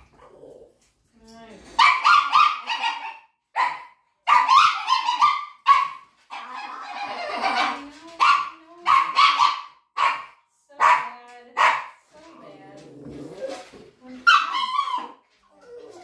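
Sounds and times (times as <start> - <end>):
dog yelping: 1.8 - 10.3, 14.2 - 16.0.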